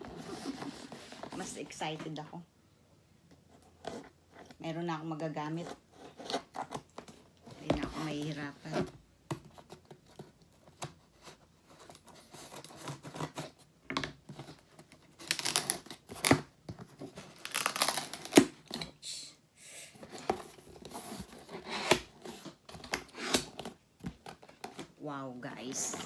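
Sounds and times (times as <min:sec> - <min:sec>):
cardboard scraping and rustling: 0:00.0 - 0:02.2, 0:20.0 - 0:26.0
tape tearing from cardboard: 0:15.2 - 0:16.5, 0:17.3 - 0:18.9, 0:21.5 - 0:22.2, 0:22.8 - 0:23.7.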